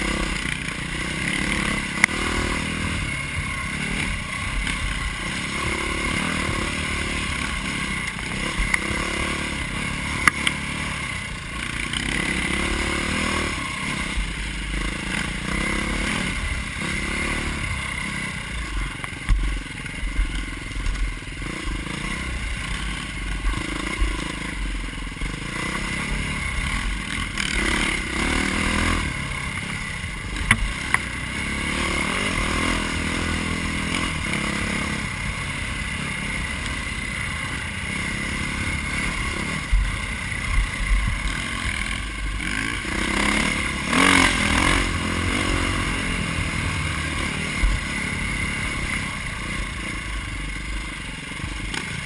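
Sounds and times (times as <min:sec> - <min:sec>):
dirt bike engine running: 0:00.0 - 0:52.0
bike knocking and rattling: 0:16.5 - 0:31.6.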